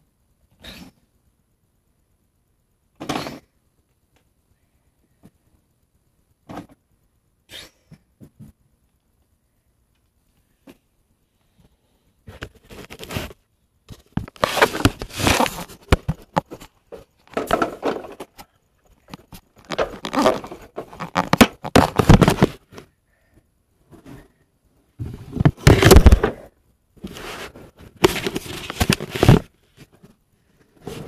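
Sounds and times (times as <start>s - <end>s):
handling noise on recorder: 12.3s - 22.9s, 25.0s - 30.2s.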